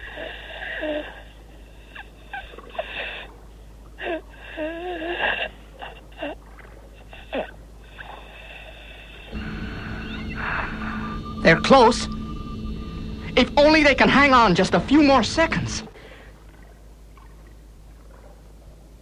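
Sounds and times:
labored breathing through scuba gear: 15.9s - 16.4s.

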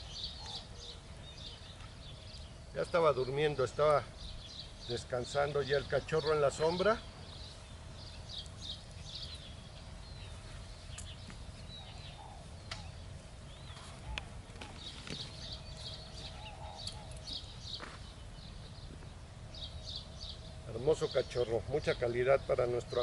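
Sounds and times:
low background rumble: 0.0s - 23.0s
small birds chirping: 0.0s - 23.0s.

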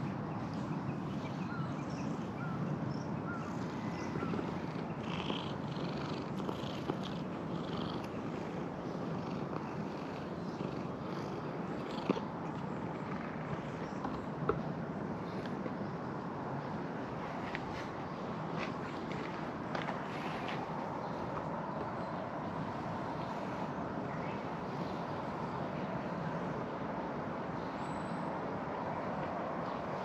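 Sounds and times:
cat purring: 4.2s - 14.0s.

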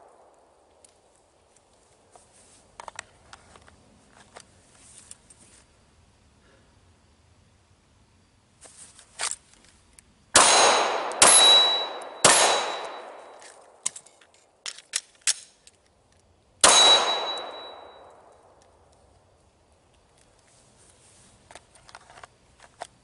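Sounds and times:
metallic ring of steel target: 10.4s - 13.6s, 16.6s - 18.2s
pistol shots: 10.4s - 13.9s, 16.6s - 18.3s.

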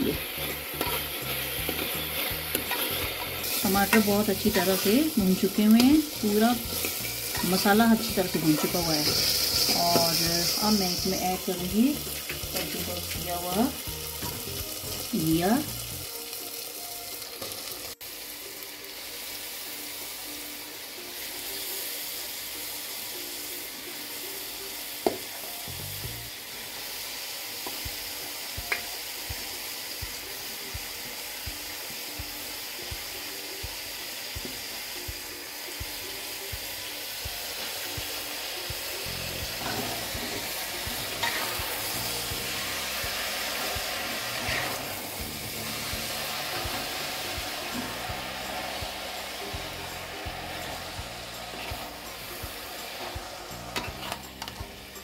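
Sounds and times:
vegetables sizzling in a pot: 0.0s - 55.0s
stirring in a pot: 0.2s - 10.6s.

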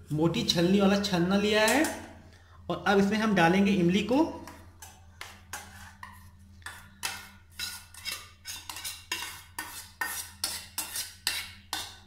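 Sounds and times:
spoon scraping steel bowl: 4.4s - 12.0s.

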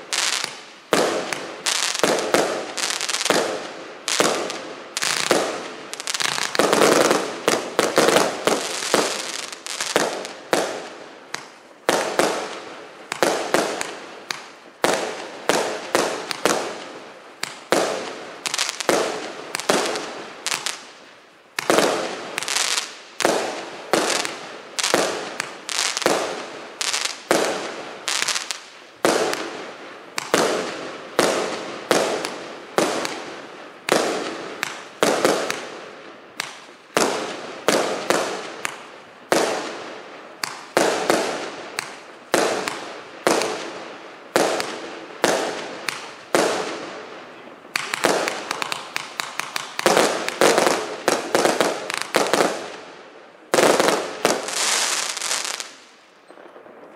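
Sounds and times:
fireworks bangs: 0.0s - 56.9s.

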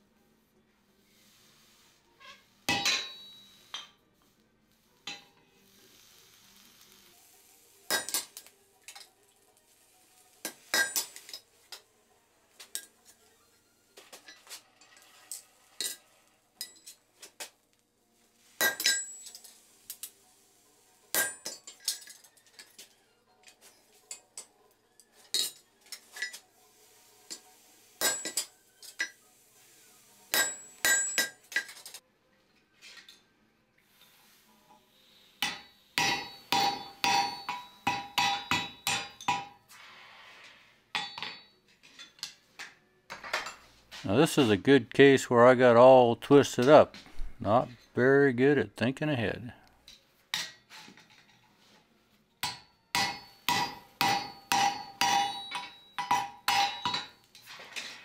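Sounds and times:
hammer striking hot chisel: 30.3s - 31.4s, 35.4s - 39.6s, 52.4s - 57.1s.

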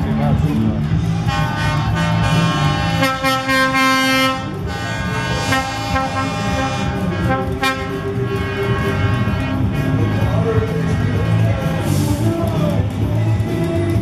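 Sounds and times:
lorry air horn blasts: 1.2s - 10.5s.

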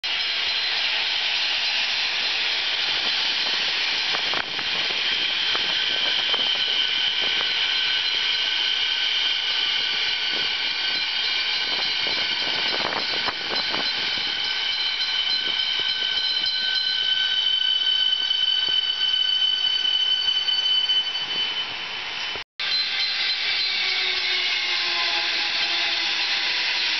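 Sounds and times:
high whining tones of train: 0.0s - 26.9s
wheels rushing on rail: 0.0s - 26.9s.

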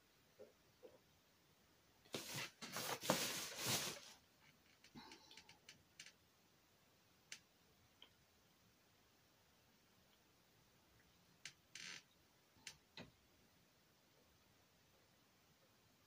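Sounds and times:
close rustling and scraping: 2.1s - 4.2s.

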